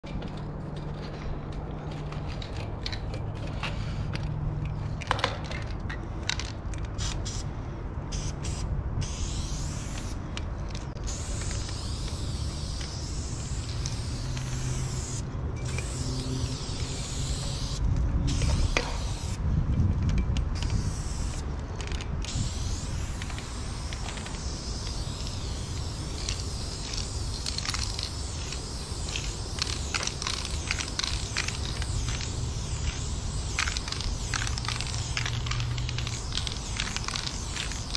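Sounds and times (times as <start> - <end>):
aerosol spray can hissing: 11.0 - 19.4, 22.3 - 37.9.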